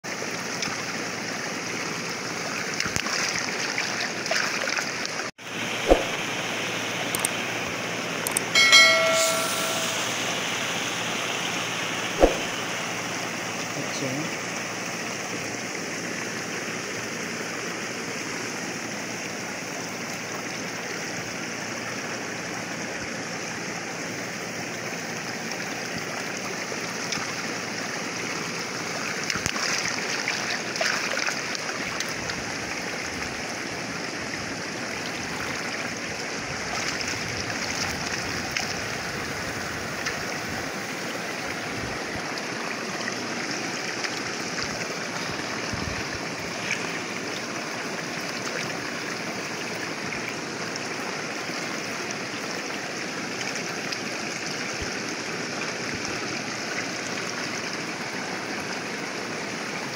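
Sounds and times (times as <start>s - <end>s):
muddy water rushing through net: 0.2s - 6.9s, 24.6s - 59.9s.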